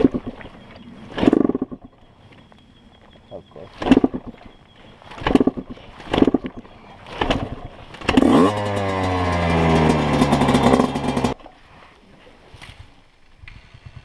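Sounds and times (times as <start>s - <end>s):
dirt bike engine starting: 5.2s - 11.4s.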